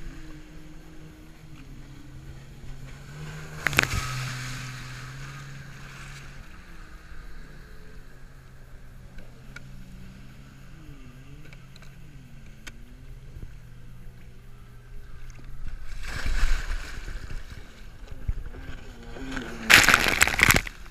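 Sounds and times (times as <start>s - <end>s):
jet ski engine running: 0.0s - 19.8s
loud water splash: 15.9s - 17.6s.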